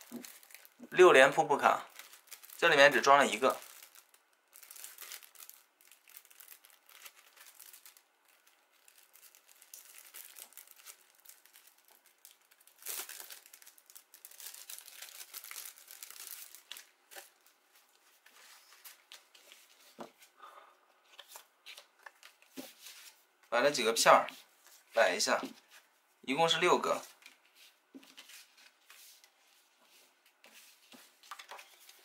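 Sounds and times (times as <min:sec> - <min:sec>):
plastic sleeve crinkling: 0:00.0 - 0:19.8.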